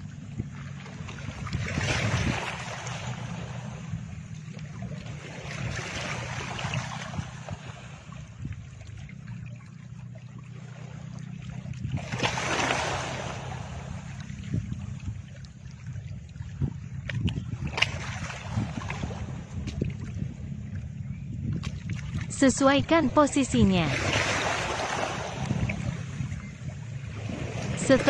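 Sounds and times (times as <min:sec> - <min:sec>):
surf-like rushing noise: 0:01.1 - 0:03.9, 0:12.0 - 0:14.6, 0:22.2 - 0:26.3, 0:27.0 - 0:28.0
steady low drone: 0:13.1 - 0:28.0.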